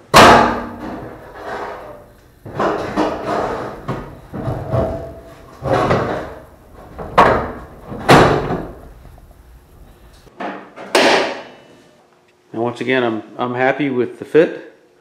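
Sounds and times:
heavy knocks on sheet metal: 0.0s - 9.0s.

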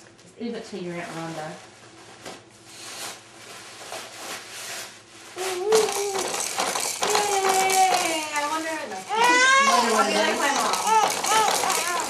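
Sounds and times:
baby vocalizing: 9.0s - 12.0s.

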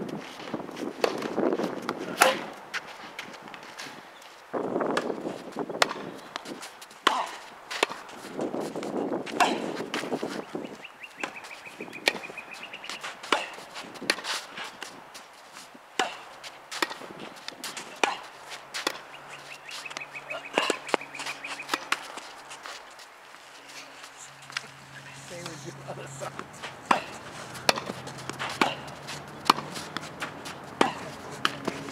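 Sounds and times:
tennis ball pops: 26.9s - 28.8s.

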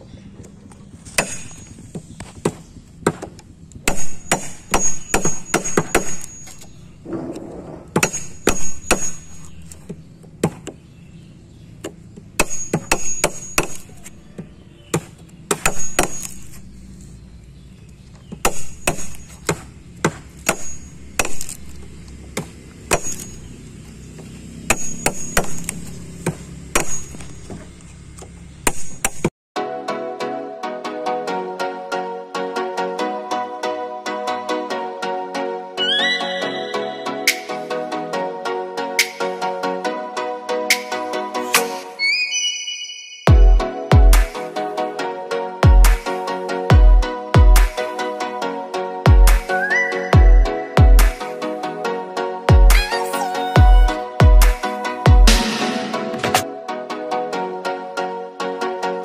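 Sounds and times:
hammer striking chisel: 1.2s - 1.7s, 2.4s - 6.7s, 7.9s - 9.5s, 11.8s - 16.5s, 18.4s - 21.6s, 22.4s - 23.4s, 24.7s - 27.6s.

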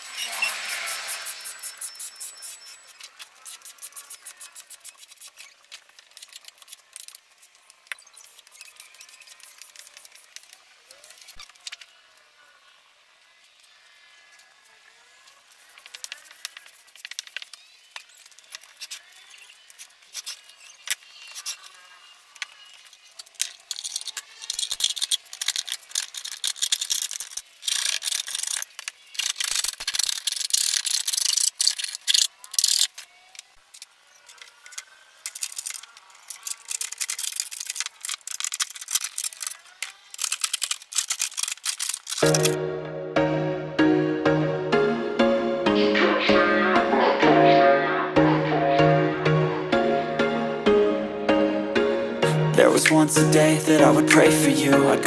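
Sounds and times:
scraping and rubbing on laminate: 15.5s - 17.6s.

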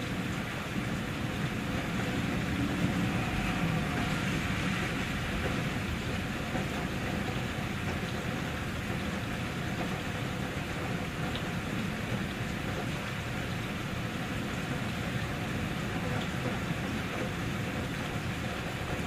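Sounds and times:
steady rain falling: 0.0s - 19.0s
low rumble: 0.2s - 8.2s.

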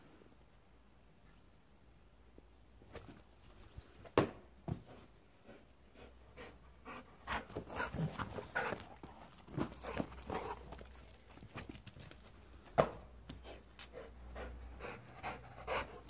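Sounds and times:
dog panting: 4.9s - 11.0s, 13.3s - 16.0s.

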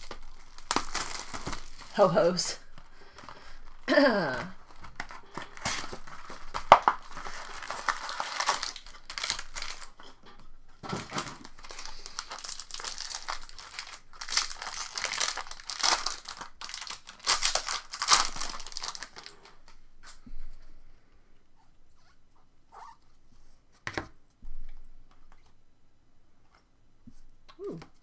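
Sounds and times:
foil wrapper crinkling and tearing: 0.0s - 10.2s, 10.8s - 19.8s.

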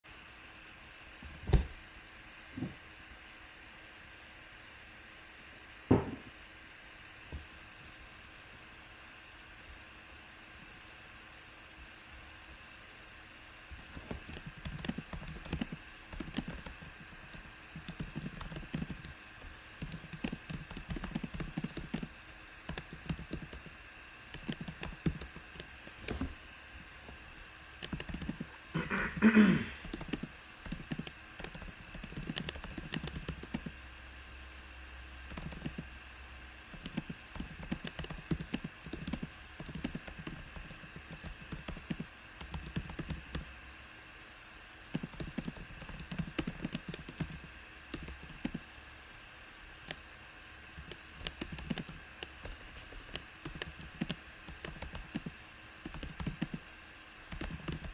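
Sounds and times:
computer keyboard typing: 13.9s - 26.3s, 27.8s - 28.6s, 29.8s - 33.8s, 35.3s - 35.9s, 36.7s - 43.5s, 44.9s - 48.6s, 49.8s - 50.0s, 50.7s - 56.6s, 57.3s - 57.9s.

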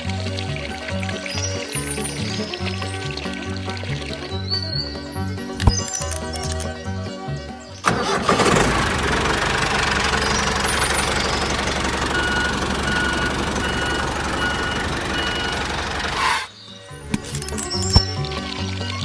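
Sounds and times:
background music: 0.0s - 9.0s, 16.2s - 19.0s
small motor chattering: 5.6s - 6.8s.

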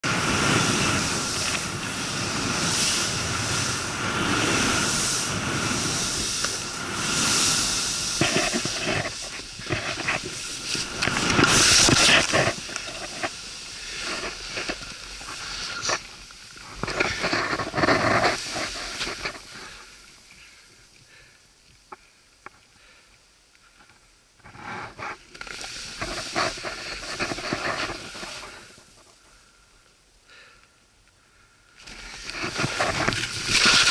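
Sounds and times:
wind rushing over microphone: 0.0s - 14.7s
skis hissing through powder snow: 0.0s - 20.7s, 24.5s - 29.1s, 31.8s - 33.9s.

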